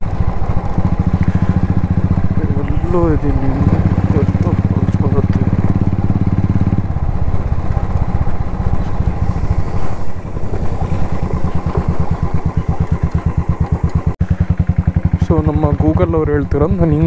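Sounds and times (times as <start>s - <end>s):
motorcycle engine pulsing beat: 0.0s - 9.7s, 10.7s - 17.0s.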